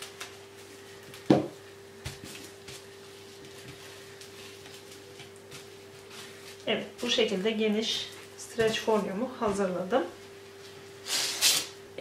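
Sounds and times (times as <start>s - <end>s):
steady hum: 0.0s - 12.0s
cardboard roll knocking on table: 1.3s - 1.6s.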